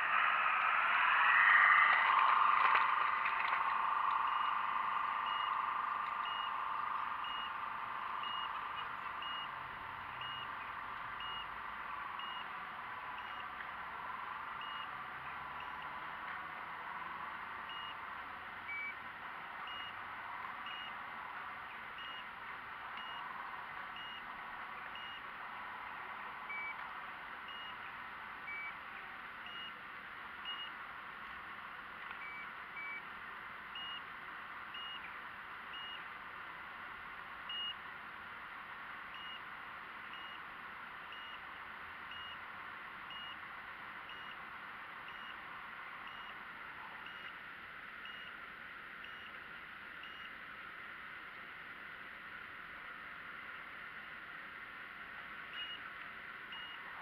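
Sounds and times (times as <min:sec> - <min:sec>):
short high beeps: 0:03.7 - 0:09.6.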